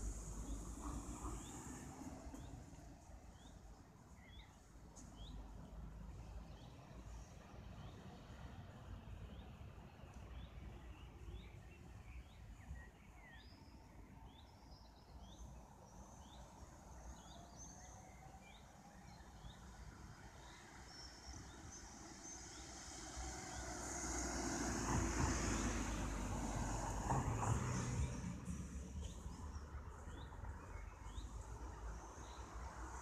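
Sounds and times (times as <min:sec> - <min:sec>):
road traffic rumble: 0:00.0 - 0:12.6, 0:18.4 - 0:33.0
car driving past: 0:21.4 - 0:33.0.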